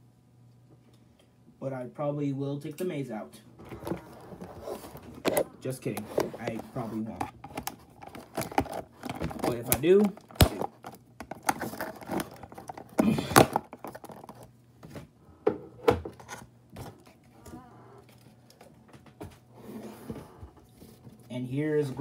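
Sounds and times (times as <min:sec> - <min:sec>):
cardboard and plastic rustling: 0:03.6 - 0:15.2.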